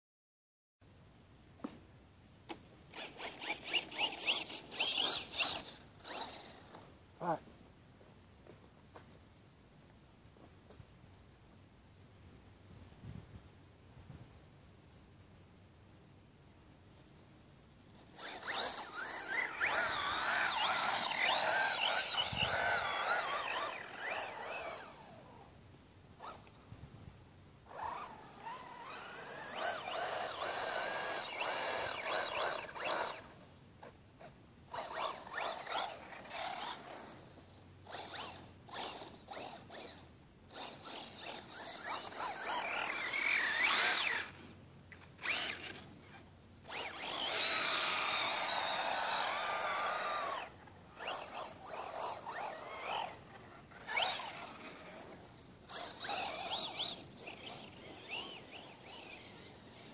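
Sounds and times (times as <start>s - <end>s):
electric motor whining: 2.9s - 7.4s, 18.0s - 25.5s, 27.7s - 59.9s.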